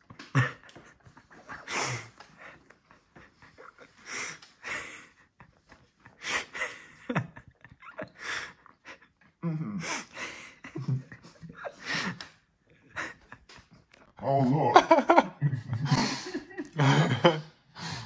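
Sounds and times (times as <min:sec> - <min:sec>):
man groaning: 0:14.2 - 0:14.9
man breathing hard: 0:17.7 - 0:18.0.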